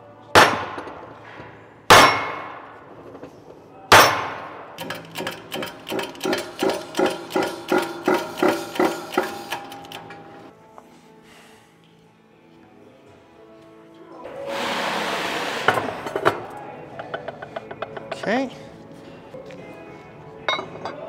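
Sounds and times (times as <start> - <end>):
mallet striking ringing steel gear: 4.8 - 10.2.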